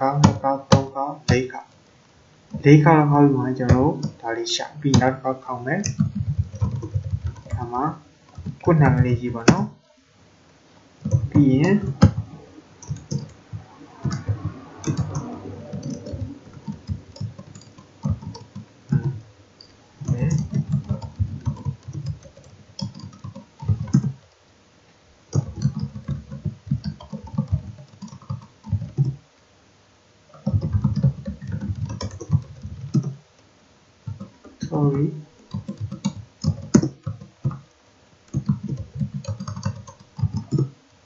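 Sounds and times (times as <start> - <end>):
computer keyboard typing: 0.0 - 1.7, 3.7 - 4.2, 5.7 - 9.7, 11.0 - 24.4, 25.3 - 29.2, 30.3 - 33.2, 34.0 - 34.8, 35.4 - 40.8.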